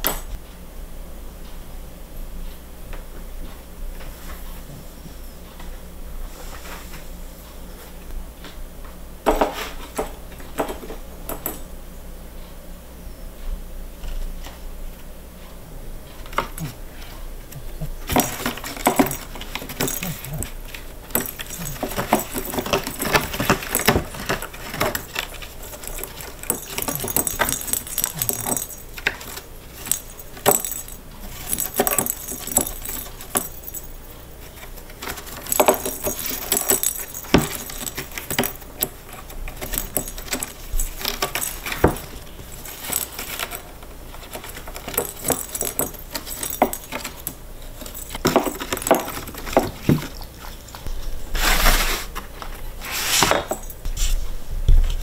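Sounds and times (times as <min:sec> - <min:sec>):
balls clattering in cardboard toy: 0:17.6 - 0:50.3
claws scratching cardboard: 0:52.8 - 0:53.4.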